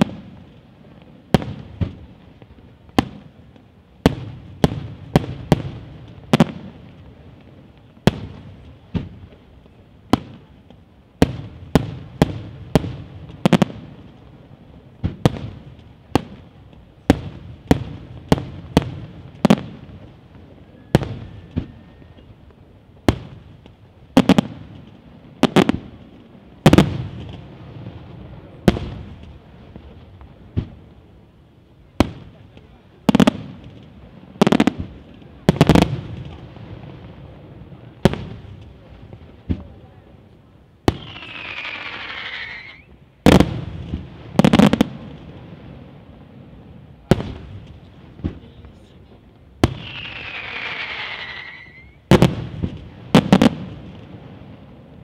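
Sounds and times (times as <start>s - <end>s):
firework bangs: 0.0s - 31.2s, 31.9s - 55.0s
crackling fireworks: 0.0s - 55.0s
wavering firework whistle: 20.6s - 22.4s, 40.9s - 43.0s, 49.7s - 52.1s
firework shells bursting: 40.9s - 44.8s, 49.6s - 53.6s.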